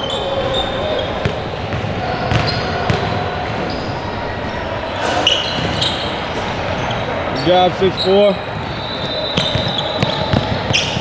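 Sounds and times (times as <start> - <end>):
sneaker squeaks: 0.0 - 11.0
basketball bouncing on wood floor: 1.2 - 3.1, 9.4 - 11.0.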